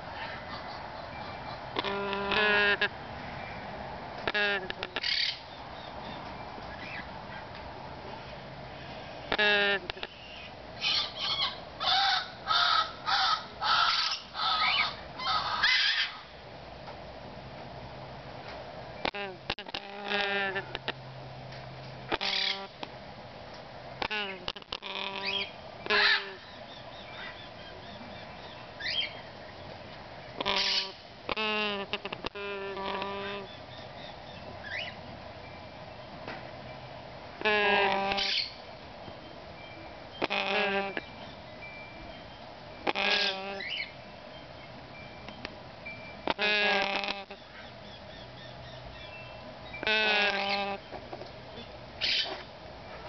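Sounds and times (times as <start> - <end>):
parrot harsh raspy calls: 0.2 - 2.9, 4.3 - 5.4, 9.3 - 16.3, 19.1 - 20.9, 22.1 - 22.8, 24.0 - 27.5, 30.4 - 33.8, 37.4 - 38.6, 40.2 - 41.0, 42.8 - 43.9, 46.3 - 49.1, 49.7 - 50.8, 52.0 - 52.4.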